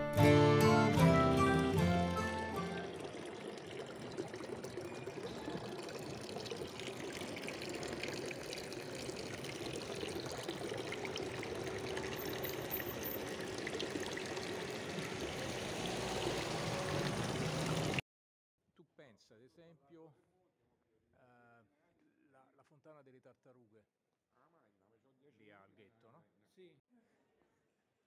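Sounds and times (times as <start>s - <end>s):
fountain water splashing: 0.7s - 18.0s.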